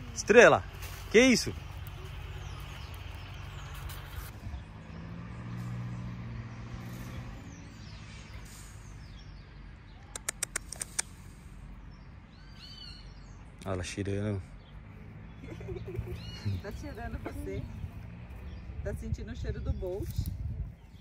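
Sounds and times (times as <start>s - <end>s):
small birds chirping: 0.0s - 21.0s
vehicle humming: 0.0s - 21.0s
sharp clicks: 10.0s - 11.2s.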